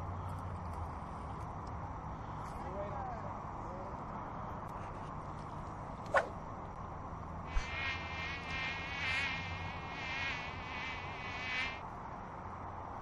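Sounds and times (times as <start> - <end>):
mosquito whining: 7.5 - 11.8.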